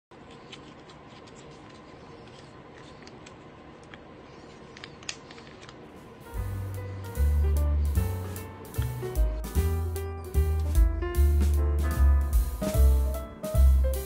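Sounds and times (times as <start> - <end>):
cat food pouch crinkling: 0.2 - 3.5
music with low bass: 6.4 - 14.0.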